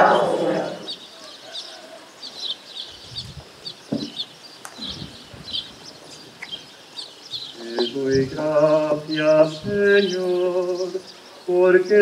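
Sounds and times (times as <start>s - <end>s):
small bird chirping: 0.7s - 12.0s.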